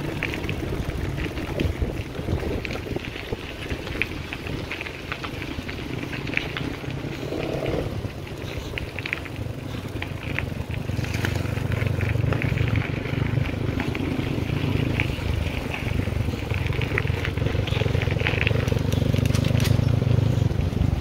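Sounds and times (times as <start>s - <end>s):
wind on microphone: 0.0s - 9.2s
bicycle tyres rolling on gravel: 0.0s - 21.0s.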